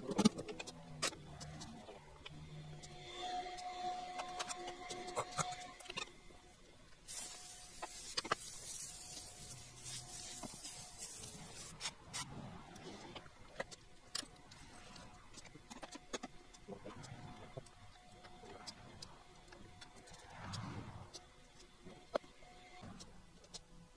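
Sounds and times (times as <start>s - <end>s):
hiss: 7.1s - 11.8s.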